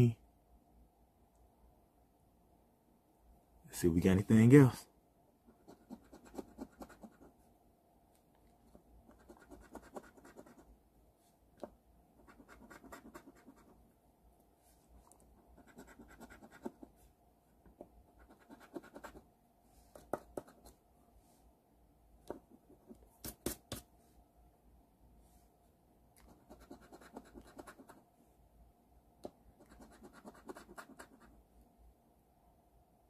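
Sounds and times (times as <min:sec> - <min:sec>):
scratch card being scratched: 0:05.6 - 0:07.3, 0:09.1 - 0:10.6, 0:12.2 - 0:13.7, 0:15.6 - 0:16.8, 0:18.2 - 0:19.2, 0:26.3 - 0:28.0, 0:29.7 - 0:31.3.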